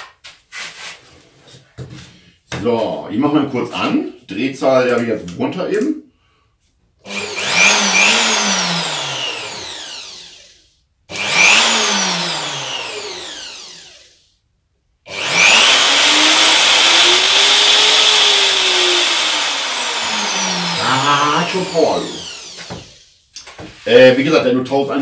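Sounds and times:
router spinning with high whine: 7.1 - 14.2, 15.1 - 23.2.

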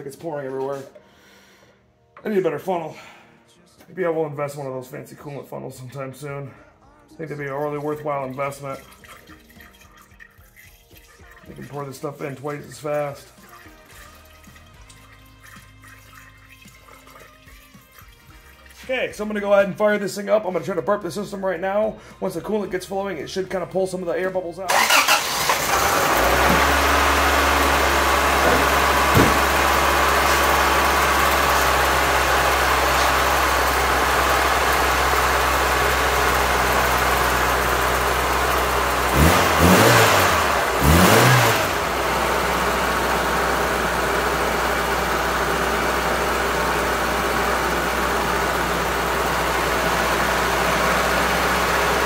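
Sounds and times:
car engine idling and revving: 24.7 - 52.0.

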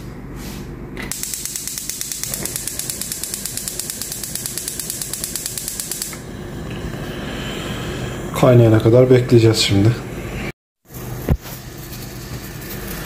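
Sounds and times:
gas hob spark igniter clicking: 1.1 - 6.2.

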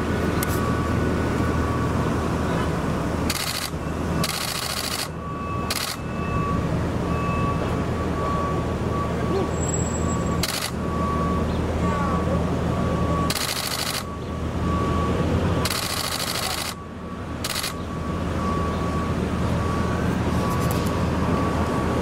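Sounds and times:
rapid camera shutter clicks: 3.3 - 5.1, 10.4 - 10.8, 13.3 - 14.1, 15.6 - 16.8, 17.4 - 17.8.

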